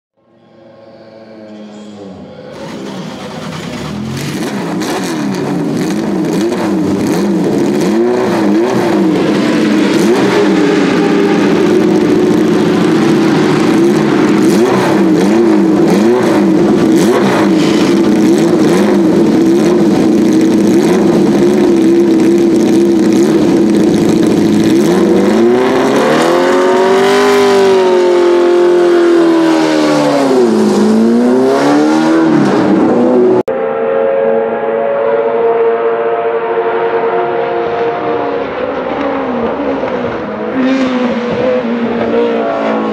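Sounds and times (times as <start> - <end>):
race car engine idling and revving: 0.6 - 42.9.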